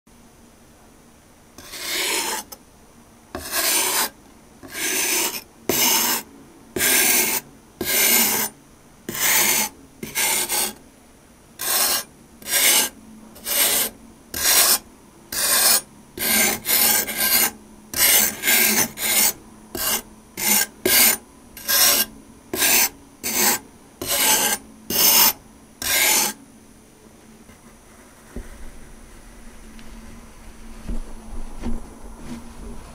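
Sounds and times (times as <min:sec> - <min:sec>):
knife rasping across sand: 0:01.6 - 0:02.6, 0:03.4 - 0:08.5, 0:09.1 - 0:10.8, 0:11.6 - 0:26.4.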